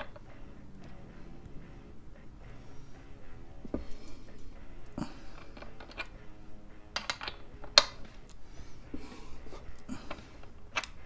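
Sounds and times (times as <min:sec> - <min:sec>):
breaker bar metal clicks and clanks: 0:04.3 - 0:06.2, 0:06.9 - 0:08.4, 0:09.8 - 0:11.0.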